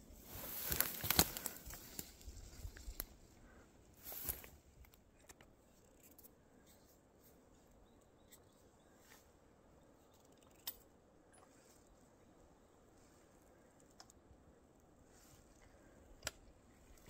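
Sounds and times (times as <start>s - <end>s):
footsteps through dry grass: 0.0s - 3.3s, 4.0s - 4.6s.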